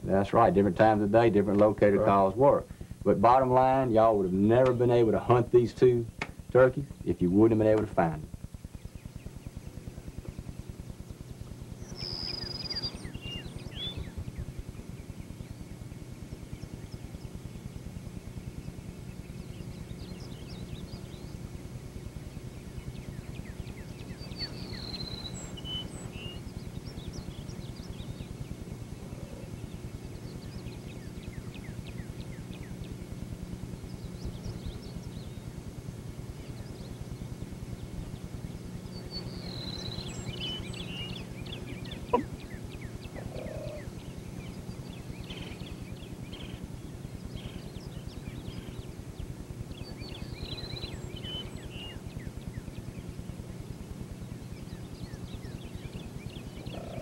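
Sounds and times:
steady low hum: 0:00.0 - 0:57.0
faint bird chirps: 0:11.7 - 0:17.9, 0:18.5 - 0:33.1, 0:36.3 - 0:53.3, 0:54.4 - 0:57.0.

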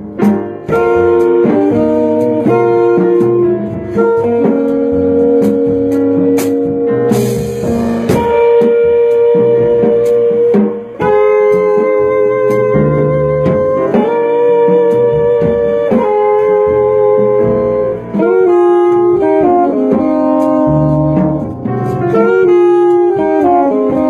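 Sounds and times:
jazz group playing: 0:00.0 - 0:24.0.

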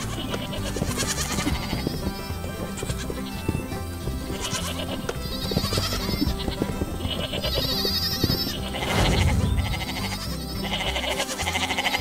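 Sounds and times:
cartoon background music: 0:00.0 - 0:12.0
goat bleats: 0:00.0 - 0:12.0
brief burst of noise: 0:08.8 - 0:10.2.

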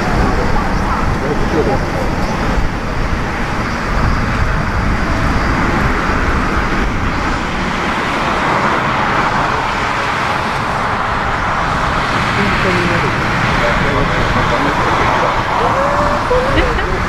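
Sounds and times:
distant jet engines rumbling: 0:00.0 - 0:17.0.

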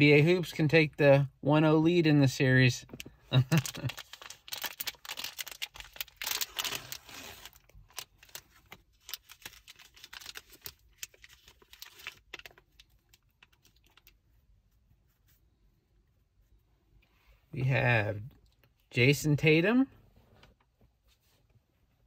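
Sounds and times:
plastic wrapper tearing and crinkling: 0:03.3 - 0:14.2.

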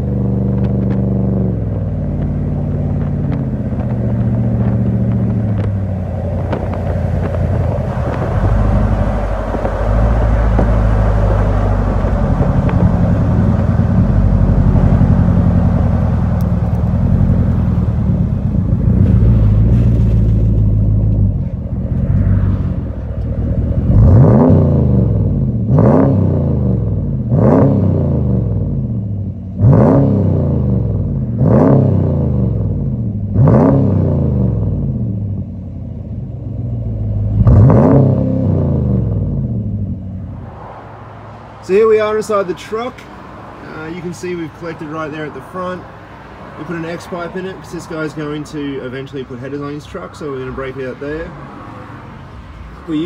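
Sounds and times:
engine throttle blips: 0:00.0 - 0:40.8
truck engine rumbling: 0:00.0 - 0:53.0.

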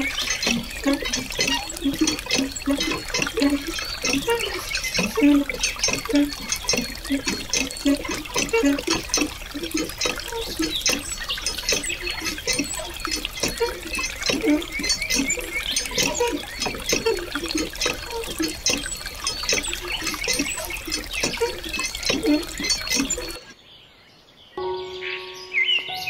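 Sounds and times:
water stream pouring into pool: 0:00.0 - 0:23.5.

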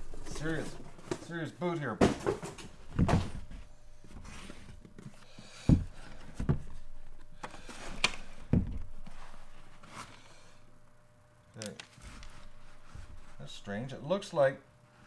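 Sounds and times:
boots thumping on workbench: 0:02.0 - 0:03.6, 0:05.6 - 0:06.8, 0:08.4 - 0:08.9
leather rustling: 0:11.9 - 0:13.9.

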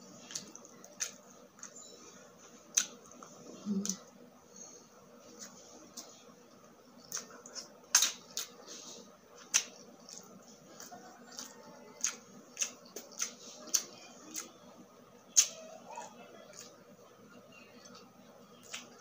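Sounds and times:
wet chewing mouth clicks: 0:09.4 - 0:14.6.

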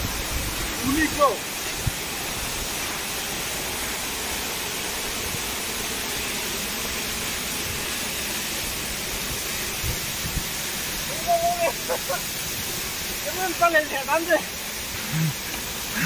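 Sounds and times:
waterfall roaring: 0:00.0 - 0:16.0.

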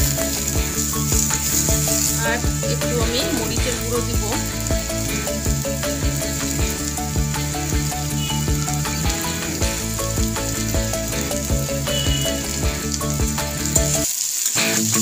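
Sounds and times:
background music: 0:00.0 - 0:15.0
potatoes sizzling in oil: 0:00.0 - 0:15.0.

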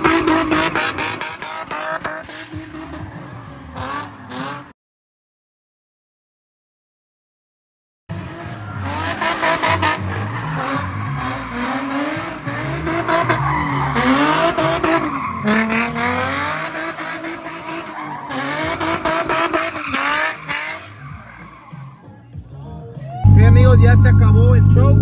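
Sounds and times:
car engine revving: 0:00.0 - 0:04.7, 0:08.1 - 0:22.0
tyres screeching: 0:08.7 - 0:22.1.

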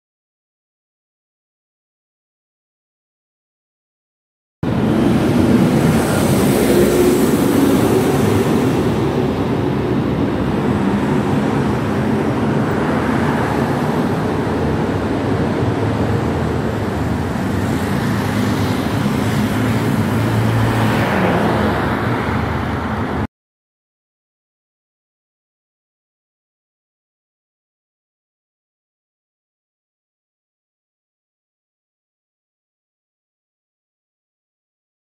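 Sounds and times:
cars driving along road: 0:04.6 - 0:23.3
vehicle passing close: 0:04.7 - 0:23.1.

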